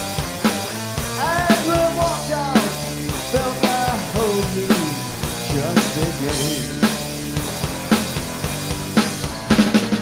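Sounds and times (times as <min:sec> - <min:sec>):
drum kit: 0:00.0 - 0:10.0
electric bass: 0:00.0 - 0:10.0
person singing: 0:01.2 - 0:07.4.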